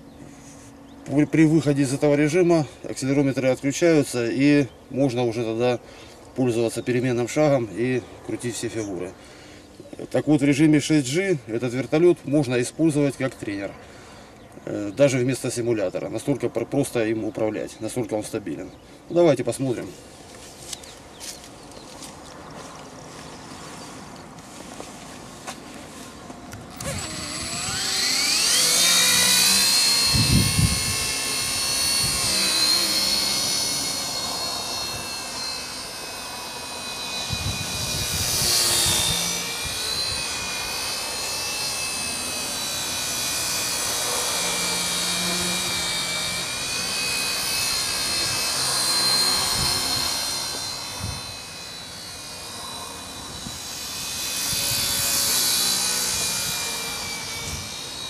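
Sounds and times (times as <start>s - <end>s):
rc helicopter motor whine and rotor: 19.6s - 58.0s.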